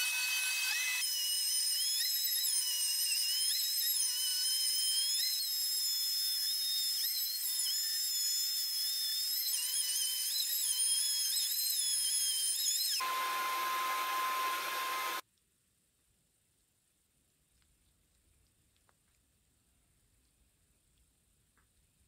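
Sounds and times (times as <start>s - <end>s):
electric router cutting wood: 0.0s - 15.2s.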